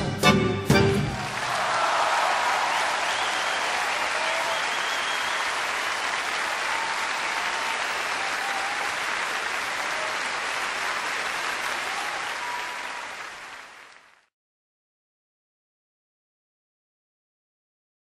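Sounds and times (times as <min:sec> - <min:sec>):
audience applauding: 0:01.0 - 0:14.3.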